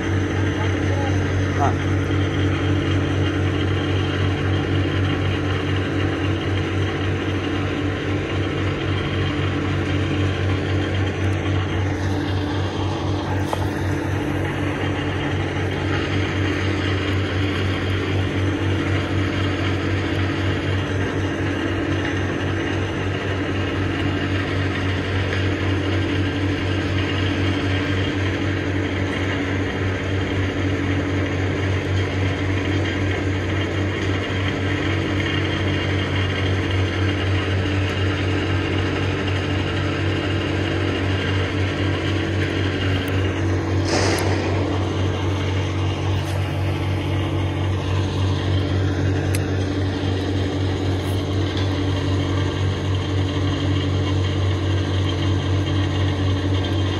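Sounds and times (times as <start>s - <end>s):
low machinery hum: 0.0s - 56.9s
sharp click: 43.8s - 46.9s.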